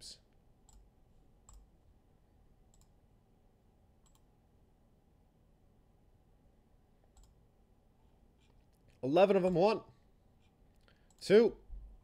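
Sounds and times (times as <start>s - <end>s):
faint computer clicks: 7.1s - 7.4s.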